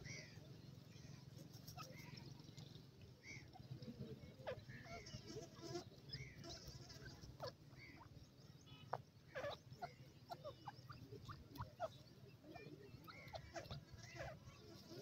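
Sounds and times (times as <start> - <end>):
bird chirping calls: 4.3 - 15.0.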